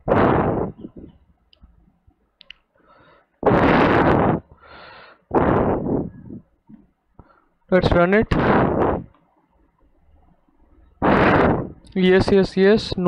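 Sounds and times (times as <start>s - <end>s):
rushing noise on microphone: 0.0s - 1.2s, 3.4s - 4.5s, 5.3s - 6.5s, 7.8s - 9.1s, 11.0s - 12.5s.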